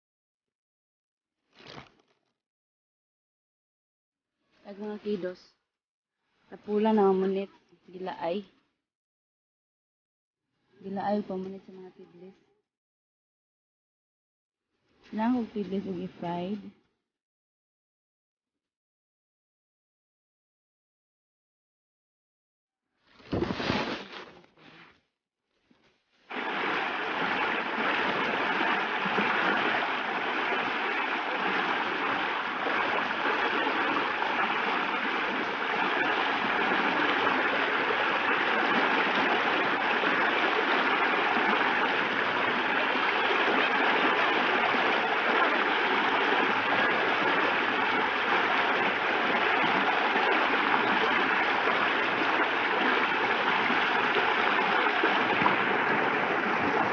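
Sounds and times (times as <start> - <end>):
stream running over stones: 26.3 - 56.9.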